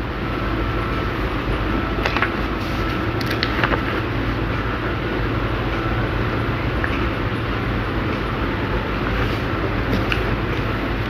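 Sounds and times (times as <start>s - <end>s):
low background noise: 0.0s - 11.0s
paper rustling as it is folded: 2.0s - 4.2s.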